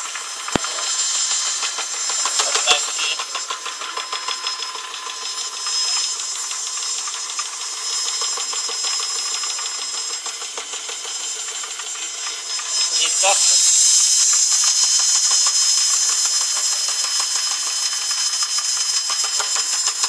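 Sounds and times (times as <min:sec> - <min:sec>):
hiss: 0:00.0 - 0:20.0
engine mechanical ticking: 0:00.1 - 0:12.0
sharp click: 0:00.5 - 0:00.9.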